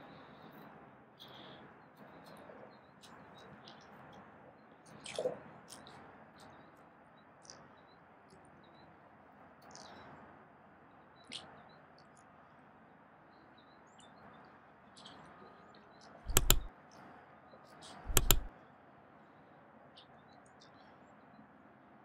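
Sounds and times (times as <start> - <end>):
faint bird chirps: 0.0 - 10.3, 10.9 - 21.6
loud sharp double click: 16.3 - 16.7, 18.1 - 18.5.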